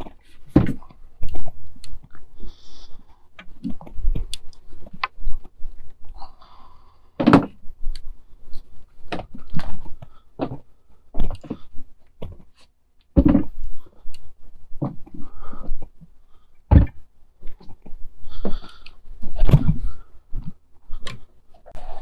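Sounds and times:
furniture knocking and thudding: 0:13.2 - 0:13.6, 0:16.7 - 0:17.0.

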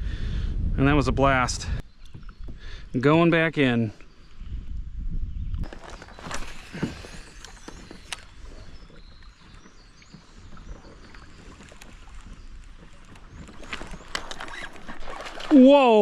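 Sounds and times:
water lapping against kayak hull: 0:05.6 - 0:16.0.

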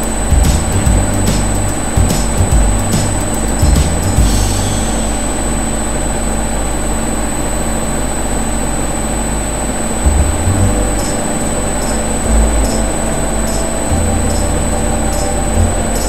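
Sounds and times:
washing machine drum rushing: 0:00.0 - 0:06.5.

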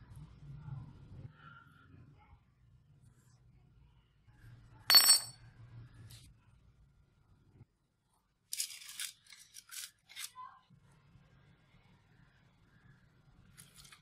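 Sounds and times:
hammer head clanking on concrete: 0:04.9 - 0:05.3.

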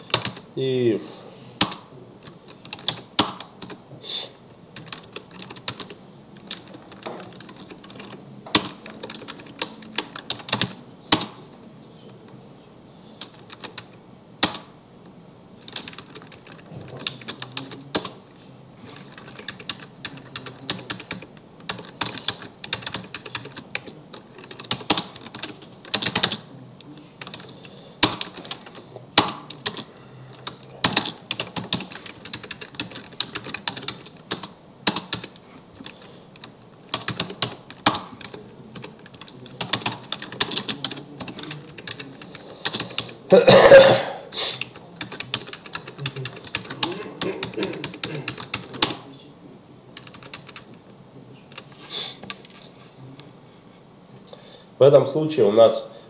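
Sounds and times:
typing on computer keyboard: 0:00.0 - 0:00.4, 0:01.6 - 0:03.8, 0:04.8 - 0:11.4, 0:13.2 - 0:14.7, 0:15.6 - 0:18.2, 0:19.0 - 0:26.5, 0:27.2 - 0:43.2, 0:44.6 - 0:49.0, 0:50.0 - 0:50.7.

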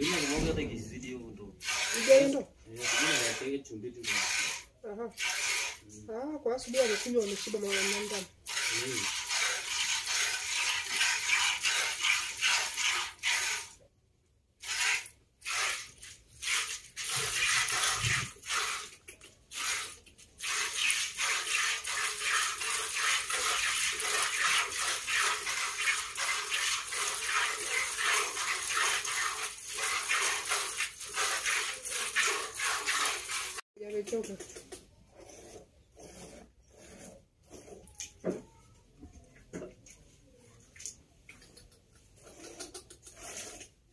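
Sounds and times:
milk squirting into plastic bucket: 0:00.0 - 0:00.6, 0:01.6 - 0:05.9, 0:06.8 - 0:13.8, 0:14.6 - 0:35.0.

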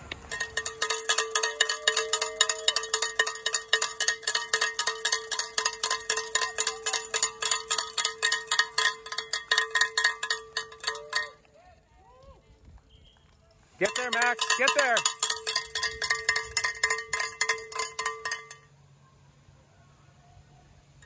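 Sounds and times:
cowbell shaken rapidly: 0:00.3 - 0:11.5, 0:13.8 - 0:18.7.

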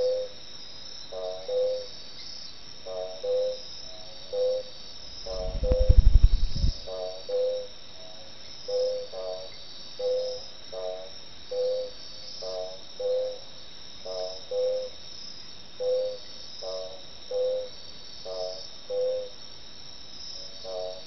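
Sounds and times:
crickets chorus: 0:00.0 - 0:21.0
frog calling low notes: 0:05.3 - 0:07.4.

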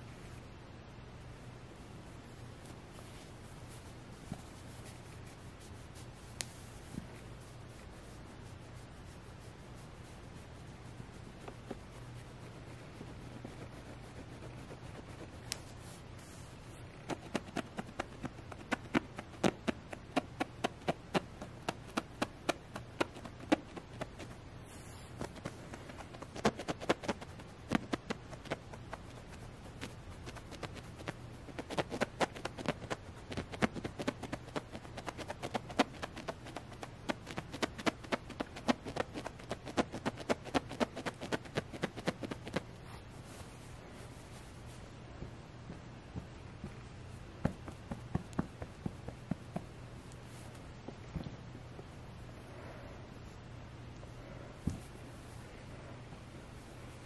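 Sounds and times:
fingernails scratching fabric: 0:11.2 - 0:16.3, 0:16.9 - 0:42.7.

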